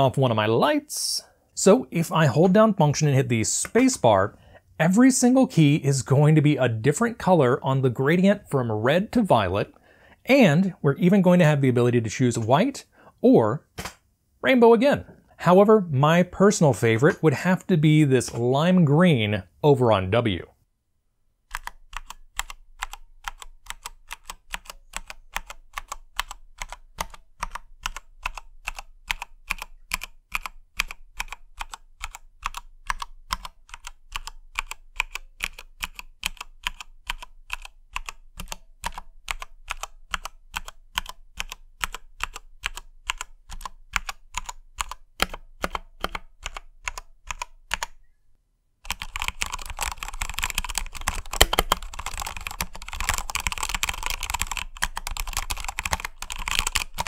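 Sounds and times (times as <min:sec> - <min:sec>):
mechanical keyboard typing: 0:21.5 - 0:48.0, 0:48.9 - 0:57.0.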